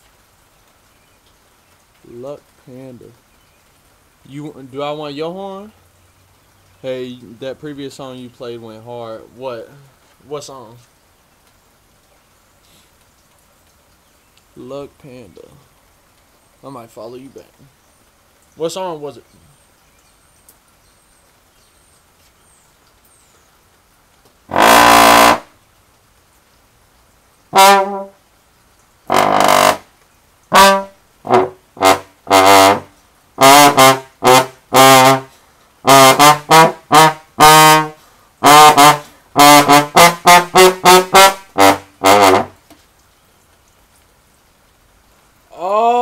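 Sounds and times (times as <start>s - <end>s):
slide trombone playing: 24.5s - 25.6s, 27.5s - 28.2s, 29.1s - 29.9s, 30.5s - 42.6s.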